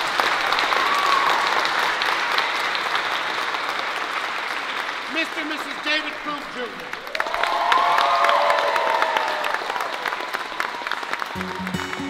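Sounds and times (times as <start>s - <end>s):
guests applauding: 0.0s - 12.0s.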